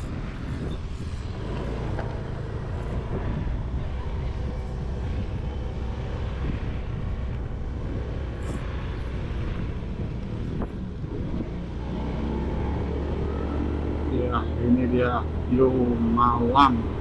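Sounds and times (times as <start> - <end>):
wind rumble on microphone: 0.0 - 17.0.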